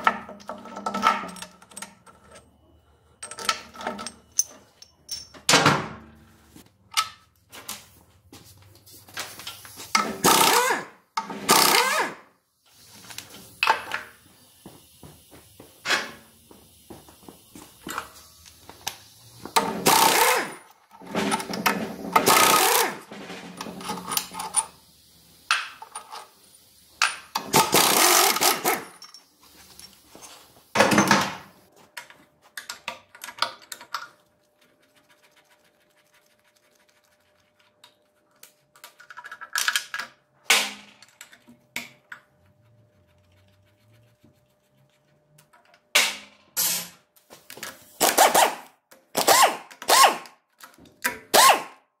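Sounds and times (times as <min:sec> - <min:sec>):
tools and metal parts clanking: 0:00.0 - 0:05.8, 0:19.6 - 0:24.8, 0:27.0 - 0:31.4.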